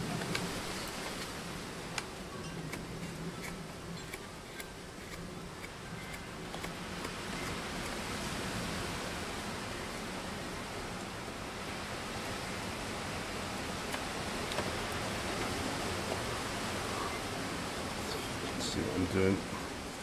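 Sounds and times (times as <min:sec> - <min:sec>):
wind and rain rushing: 0:00.0 - 0:20.0
knife shaving wood: 0:00.2 - 0:08.2.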